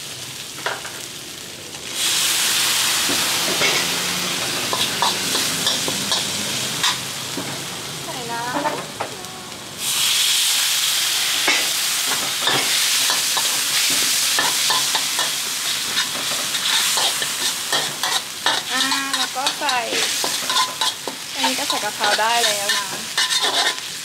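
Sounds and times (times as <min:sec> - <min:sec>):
chili paste sizzling in a wok: 0:00.0 - 0:24.0
metal spatula scraping a wok: 0:03.5 - 0:04.0, 0:04.6 - 0:07.0, 0:12.4 - 0:24.0.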